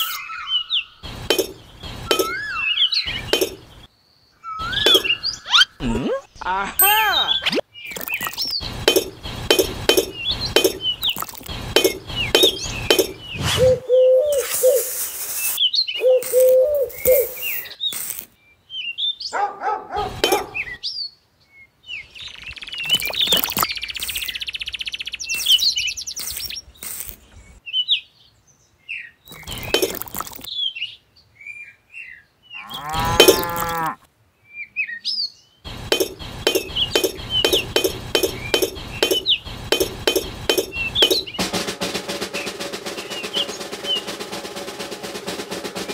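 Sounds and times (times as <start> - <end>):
bird chirps: 0.0 - 28.3, 28.9 - 33.9, 34.5 - 41.5, 42.3 - 44.1
regular clicking: 1.0 - 2.5, 3.1 - 3.9, 7.9 - 13.4, 16.2 - 18.3, 20.1 - 20.7, 22.9 - 24.4, 25.3 - 27.2, 29.3 - 30.5, 33.0 - 34.0, 35.7 - 45.9
farm animal calls: 32.6 - 34.0.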